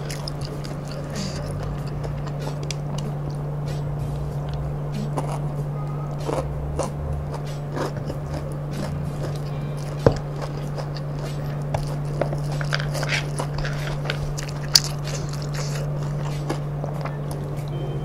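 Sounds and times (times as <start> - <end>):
crunchy chewing: 0.0 - 17.9.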